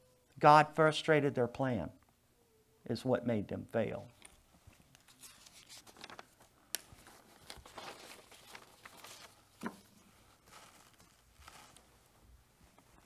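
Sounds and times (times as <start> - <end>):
paper rustling: 4.1 - 11.9.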